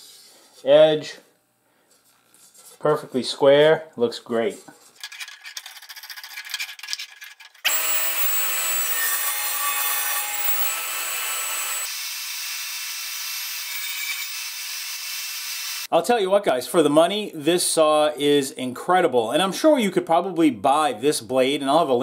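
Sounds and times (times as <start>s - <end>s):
power tool running: 7.7s - 15.9s.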